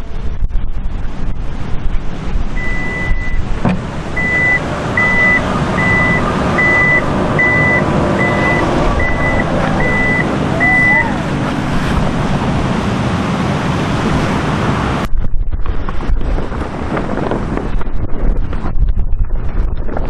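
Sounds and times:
continuous low rumble: 0.0 - 20.0
reversing alarm beeping: 2.6 - 3.4, 4.2 - 11.2.

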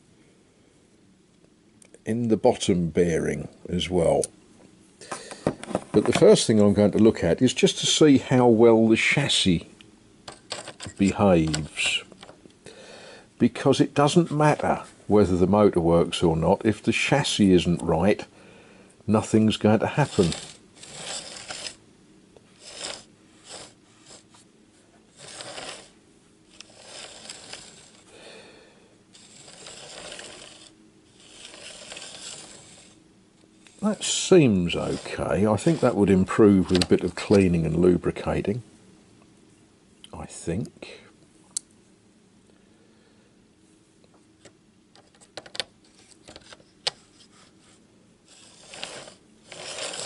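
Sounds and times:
model train wheels rattling on track: 19.8 - 21.8, 22.6 - 24.2, 25.1 - 25.9, 26.5 - 28.0, 29.2 - 33.0, 33.7 - 36.0, 48.3 - 50.0.

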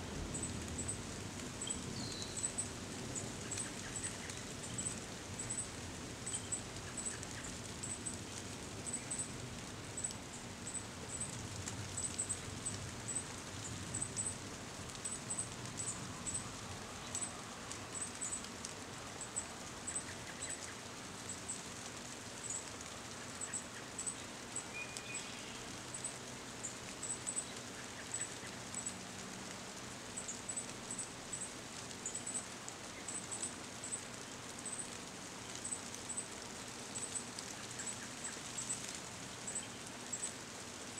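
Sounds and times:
leaves rustling: 0.0 - 40.9
rain on leaves: 0.0 - 40.9
faint bird chirp: 1.6 - 9.4, 15.0 - 21.7, 22.4 - 29.0, 30.2 - 40.4.

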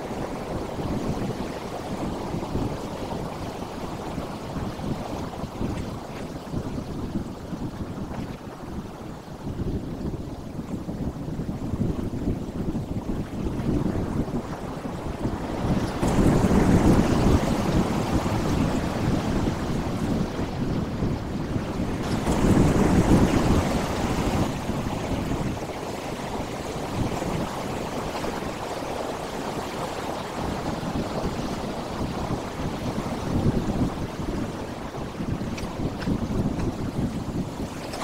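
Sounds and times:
sea waves breaking on rocks: 21.9 - 38.0.

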